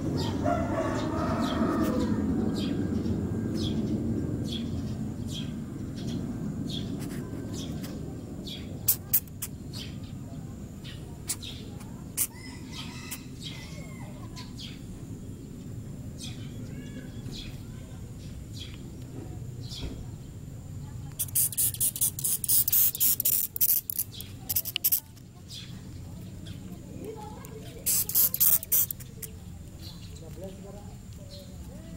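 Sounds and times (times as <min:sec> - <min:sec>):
beetle squeaking: 0:08.8 - 0:09.6, 0:11.2 - 0:13.8, 0:21.1 - 0:25.2, 0:27.0 - 0:30.5.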